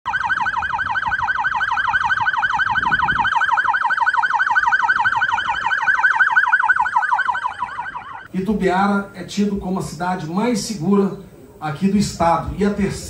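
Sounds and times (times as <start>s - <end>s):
police siren yelp: 0.1s - 8.3s.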